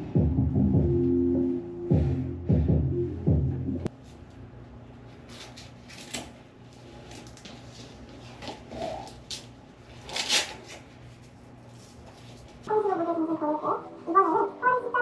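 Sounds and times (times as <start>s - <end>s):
low steady hum: 0.0s - 10.0s.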